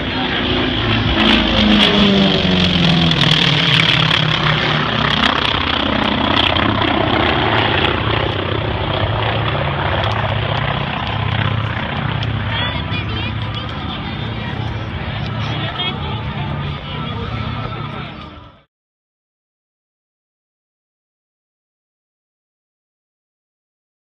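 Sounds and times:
propeller planes flying by: 0:00.0 - 0:18.7.

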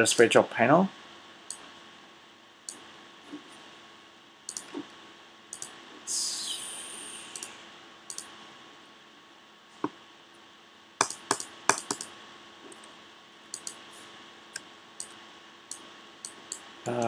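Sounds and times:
computer mouse clicking: 0:04.5 - 0:04.9, 0:05.5 - 0:05.8, 0:07.3 - 0:07.5, 0:08.1 - 0:08.4, 0:11.0 - 0:12.1, 0:12.7 - 0:13.8, 0:14.5 - 0:17.0.

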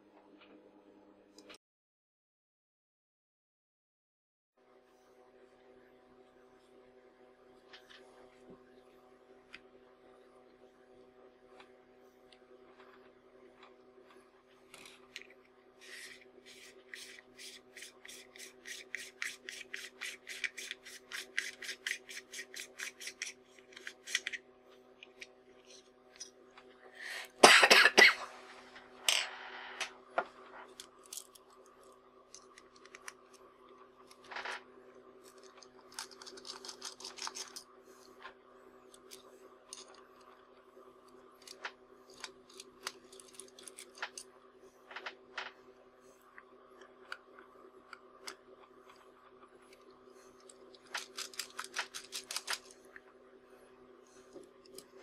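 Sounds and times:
faint steady hum: 0:04.6 - 0:55.0
scrape and clatter: 0:14.7 - 0:24.4.

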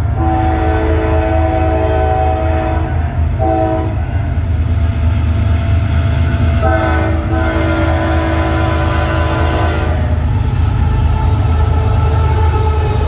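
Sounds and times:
low locomotive rumble: 0:00.0 - 0:13.0
locomotive air horn blasts: 0:00.2 - 0:04.1, 0:06.6 - 0:10.2.

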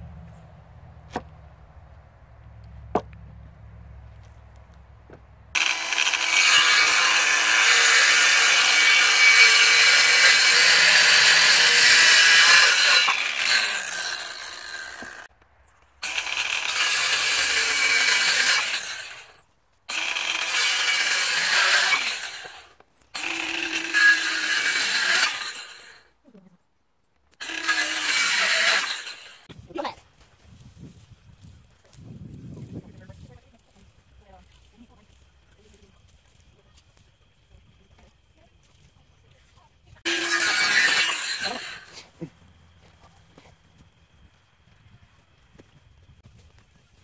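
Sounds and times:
circular saw cutting wood: 0:05.6 - 0:15.3, 0:16.0 - 0:26.1, 0:27.3 - 0:29.6, 0:39.9 - 0:44.2
saw motor winding down whine: 0:05.6 - 0:15.3, 0:27.4 - 0:29.4, 0:40.1 - 0:42.0.

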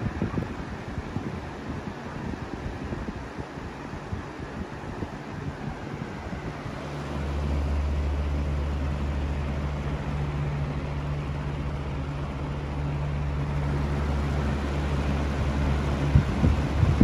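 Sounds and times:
box fan running: 0:00.0 - 0:17.0.

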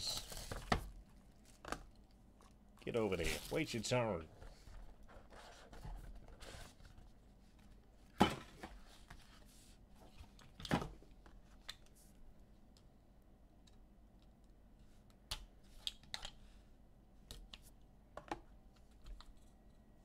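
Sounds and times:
card packaging rustling: 0:02.9 - 0:03.9.

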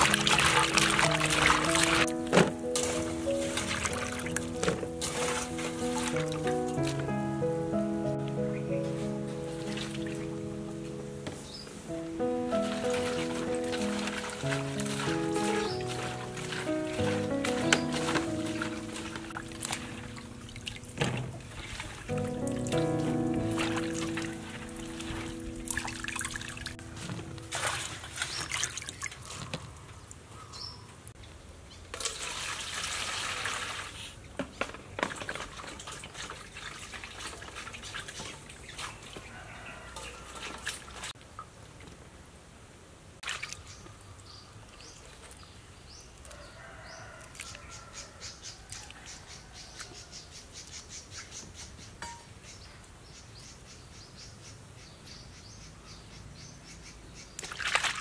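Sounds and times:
birds chirping: 0:00.0 - 0:27.4
water splashing and dripping: 0:00.0 - 0:30.3, 0:31.9 - 0:42.1, 0:43.2 - 0:45.5, 0:57.4 - 0:58.0.

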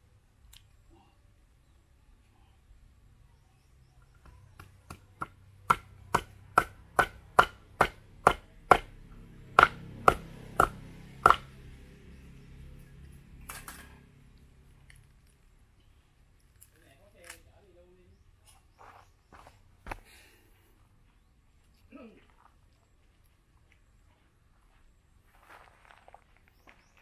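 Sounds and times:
knife chopping on wooden block: 0:04.6 - 0:08.9, 0:09.6 - 0:11.5.

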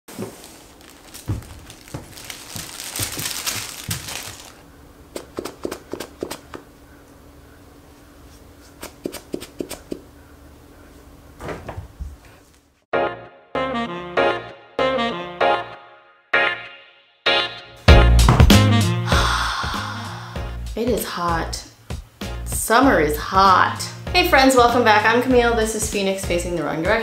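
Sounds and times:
plush toys rustling and crinkling: 0:00.1 - 0:04.6.

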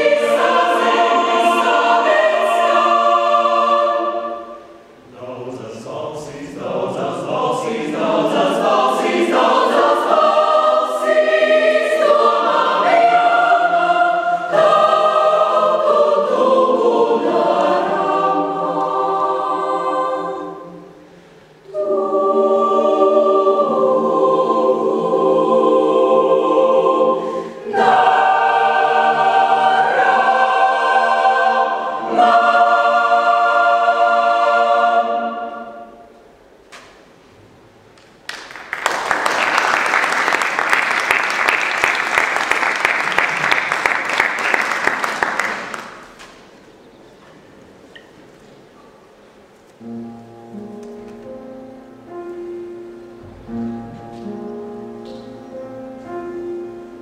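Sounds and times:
mixed choir singing: 0:00.0 - 0:36.2.

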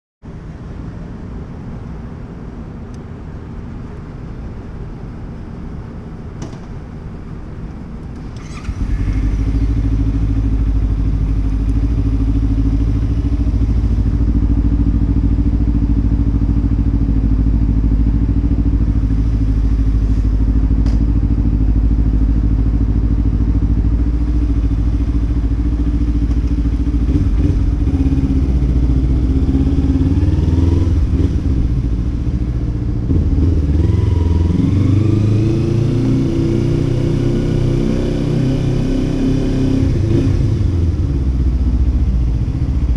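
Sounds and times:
motorcycle engine idling: 0:08.1 - 0:33.8, 0:40.4 - 0:42.9.

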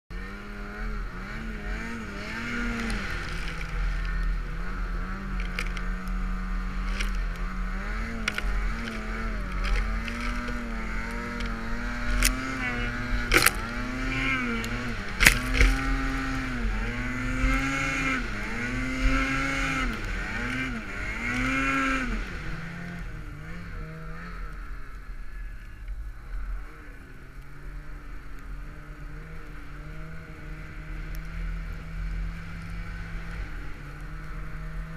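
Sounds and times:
snowmobile engine revving: 0:00.1 - 0:34.9
sharp clicks: 0:08.1 - 0:13.9.

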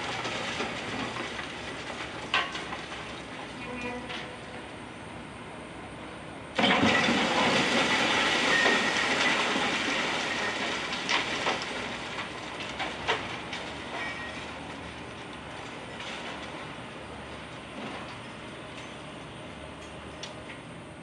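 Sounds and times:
crash of falling concrete: 0:00.0 - 0:03.1, 0:06.6 - 0:14.6
debris clattering: 0:06.6 - 0:16.6.

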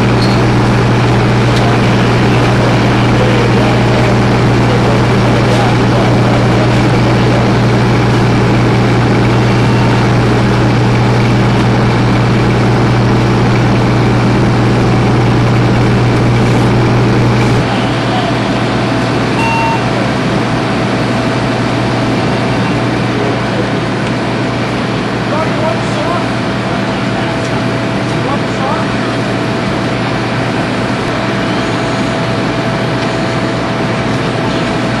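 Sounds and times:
diesel engine running: 0:00.0 - 0:35.0.

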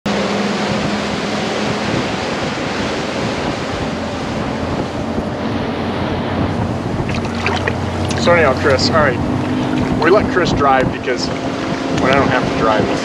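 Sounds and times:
boat engine droning: 0:00.0 - 0:13.0
water along a hull: 0:00.0 - 0:13.0
wind on microphone: 0:00.1 - 0:13.0.

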